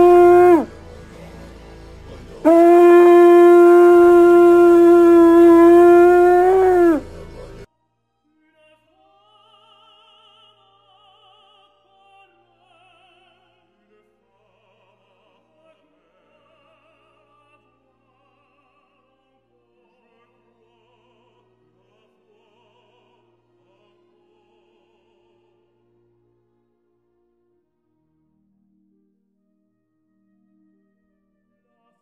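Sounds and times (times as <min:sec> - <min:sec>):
voices singing held notes: 0:00.0 - 0:00.8, 0:02.2 - 0:07.7.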